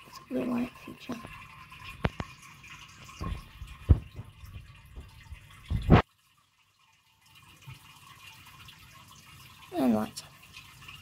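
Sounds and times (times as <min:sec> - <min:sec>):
aquarium water trickling: 0:00.0 - 0:11.0
dull knocks: 0:03.2 - 0:06.0.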